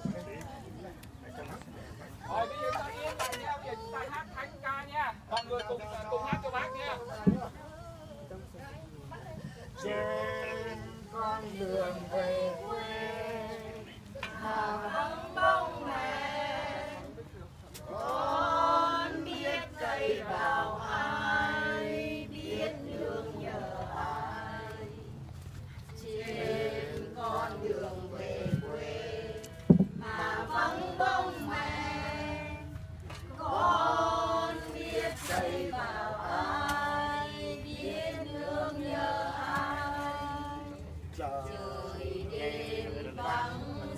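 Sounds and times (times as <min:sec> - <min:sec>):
group singing unaccompanied: 0:09.7 - 0:43.9
thump: 0:29.6 - 0:30.0.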